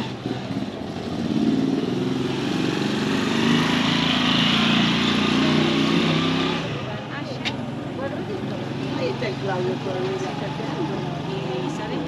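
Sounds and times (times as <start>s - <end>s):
motorcycle engine passing by: 0.0s - 7.3s.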